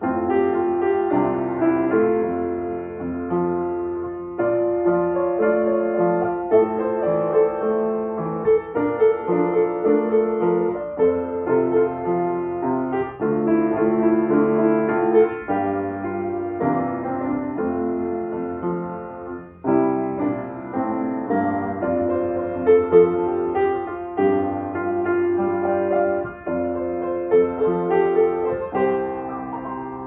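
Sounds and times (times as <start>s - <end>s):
slow piano melody: 0.0s - 30.0s.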